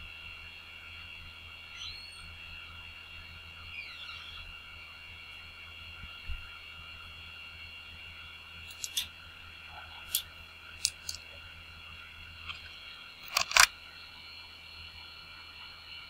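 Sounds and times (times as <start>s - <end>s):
high-pitched electronic whine: 0.0s - 16.0s
low hum: 0.0s - 16.0s
sharp short clicks: 12.5s - 13.7s.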